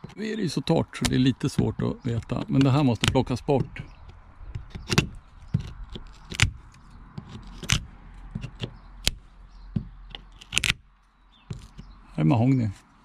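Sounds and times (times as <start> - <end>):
scraper scraping paint on wood: 2.2 - 10.8.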